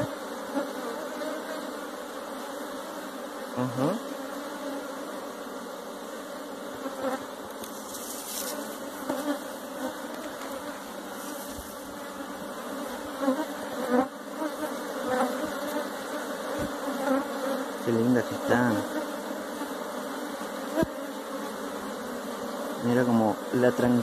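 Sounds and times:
honey bees buzzing: 0:00.0 - 0:24.0
single bee flying close by: 0:00.0 - 0:24.0.

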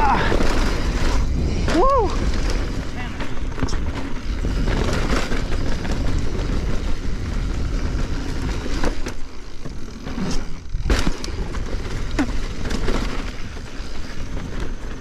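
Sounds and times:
bike tyres rumbling on dirt: 0:00.0 - 0:15.0
bike knocks: 0:08.7 - 0:13.6.

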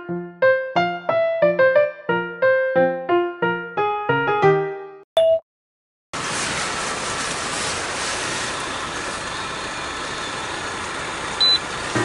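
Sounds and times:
heavy rain on a tent: 0:06.2 - 0:11.9.

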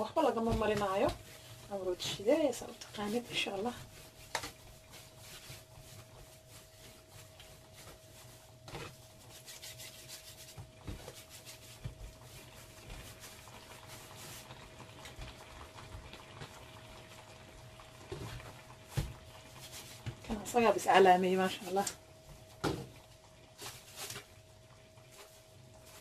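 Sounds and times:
hands rubbing dough on mat: 0:00.3 - 0:14.6.

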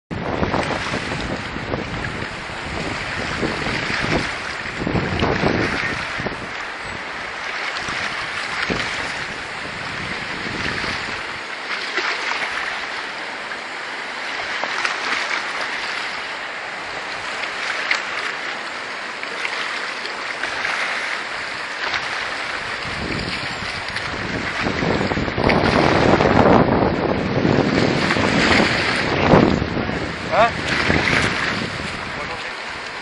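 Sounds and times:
river water rushing: 0:00.2 - 0:33.0.

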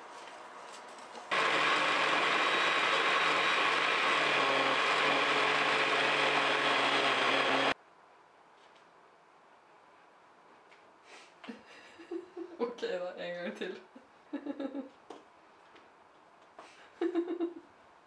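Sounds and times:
small electric motor running: 0:01.3 - 0:07.8.

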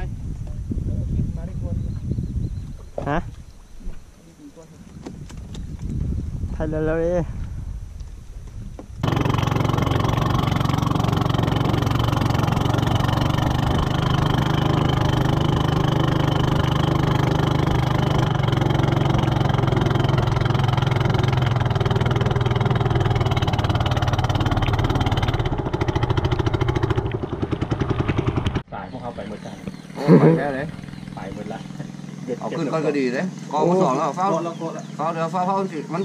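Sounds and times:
boat engine droning: 0:09.0 - 0:36.0.

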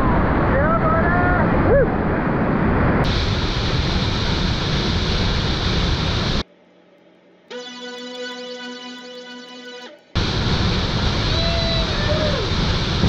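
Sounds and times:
guitar music: 0:07.5 - 0:10.2.

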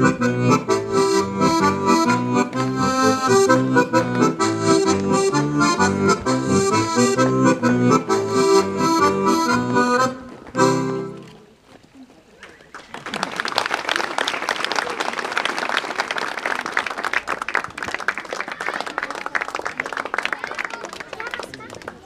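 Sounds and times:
accordion folk dance tune: 0:00.0 - 0:11.5.

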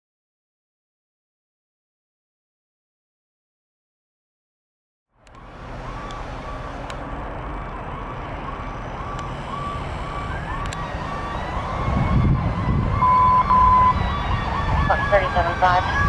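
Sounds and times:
fire truck engine: 0:05.1 - 0:16.0
pulsing fire engine siren: 0:05.2 - 0:16.0
rising high siren tone: 0:05.2 - 0:16.0.

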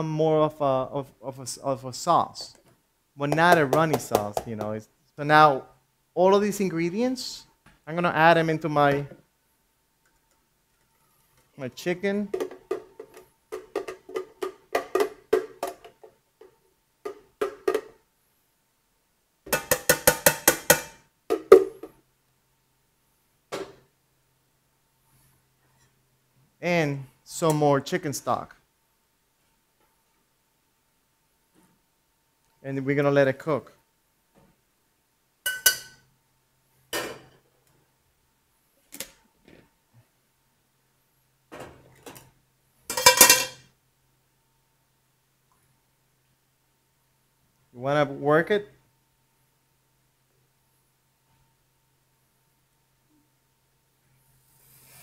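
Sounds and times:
metal pots and pans clanking: 0:42.9 - 0:43.6.

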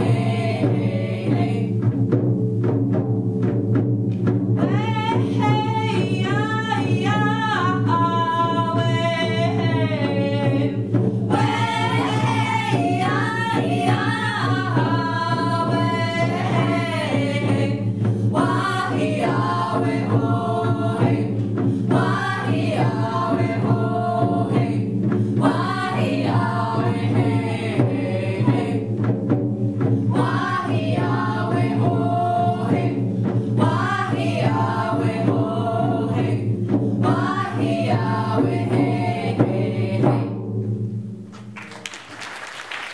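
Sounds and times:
women singing in harmony: 0:00.0 - 0:02.0, 0:04.6 - 0:29.2, 0:29.8 - 0:40.6.

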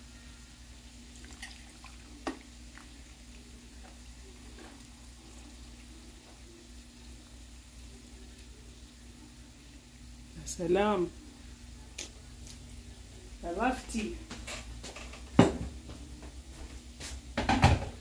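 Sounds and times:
faint steady hum: 0:00.0 - 0:14.3
water pouring into a mug: 0:01.0 - 0:06.1.

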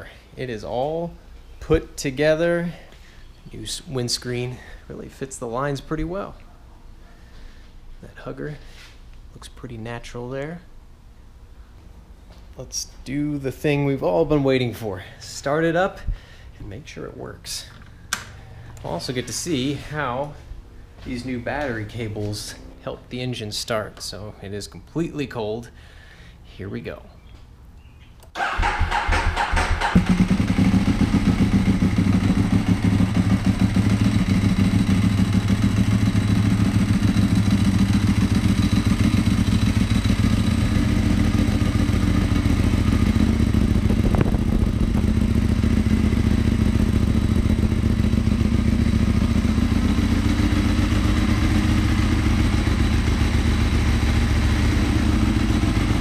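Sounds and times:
motorcycle engine idling: 0:28.4 - 0:56.0.

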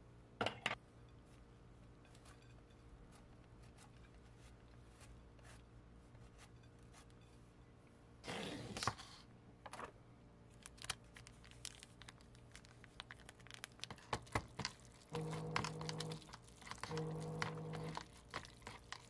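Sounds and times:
plastic sachet crinkling: 0:10.5 - 0:19.0
packaging tearing: 0:10.6 - 0:14.6.

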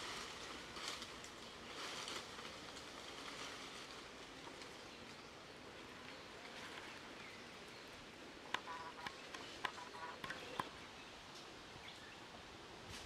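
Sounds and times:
faint outdoor background: 0:00.0 - 0:13.0.

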